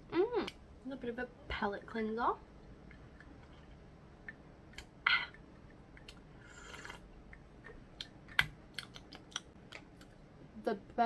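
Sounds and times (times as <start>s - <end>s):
sharp clicks and taps: 7.3s - 10.1s.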